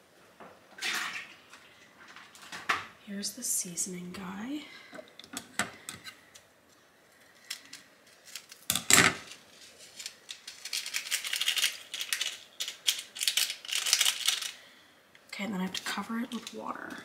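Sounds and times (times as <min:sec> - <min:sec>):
plastic packet crinkling: 0:07.2 - 0:14.8.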